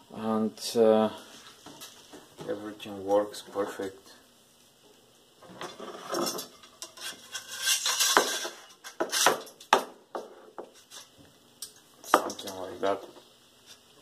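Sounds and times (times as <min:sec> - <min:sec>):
blade scraping in metal scabbard: 0:05.8 - 0:09.3.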